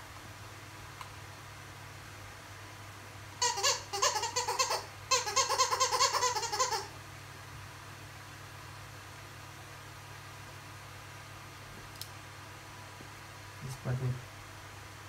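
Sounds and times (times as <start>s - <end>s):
squeaky dog toy squeaking: 3.4s - 6.9s.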